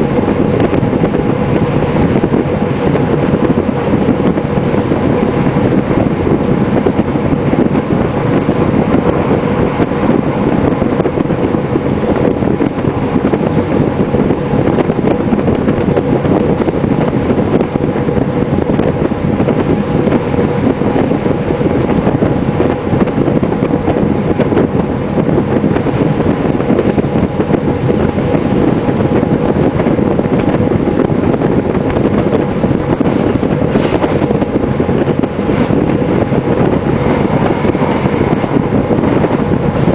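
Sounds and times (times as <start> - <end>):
railcar engine and wheels rumbling: 0.0 - 39.9
wind noise: 0.0 - 39.9.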